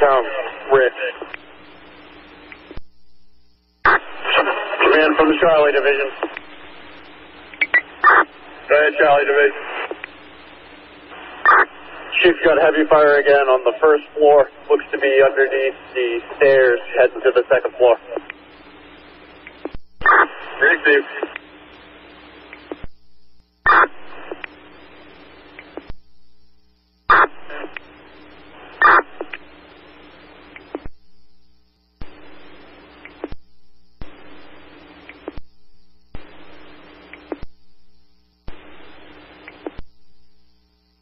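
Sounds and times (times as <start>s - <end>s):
radio static hiss: 0.0s - 41.0s
squelch clicks: 30.5s - 30.9s, 33.0s - 33.4s, 37.1s - 37.5s.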